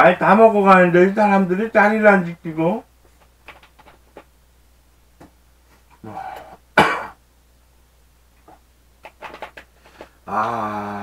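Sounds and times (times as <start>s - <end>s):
man clearing throat: 6.0s - 7.2s
man coughing: 6.1s - 7.2s.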